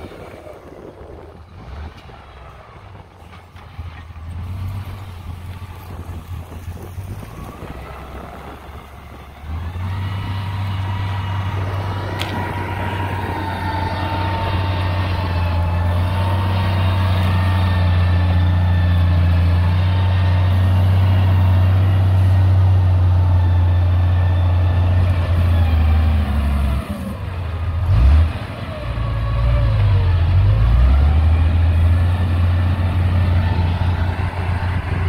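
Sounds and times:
diesel engine drone with whine: 0.0s - 35.0s
blade scraping soil: 9.5s - 21.6s.

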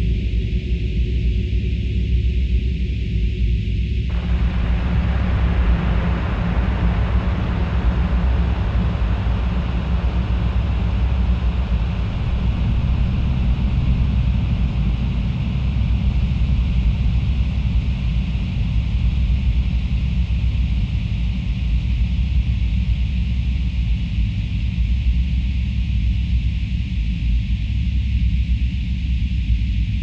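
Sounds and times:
ambient electronic drone music: 4.1s - 19.6s.

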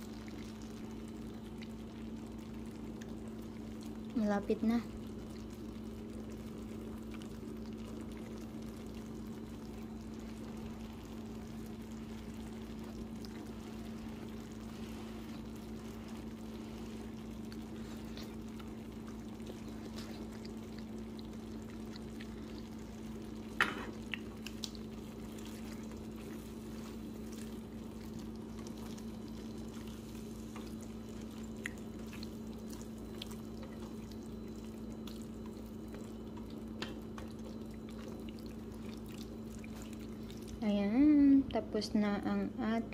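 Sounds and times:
food simmering in a skillet: 0.0s - 42.9s
steady low hum: 0.0s - 42.9s.

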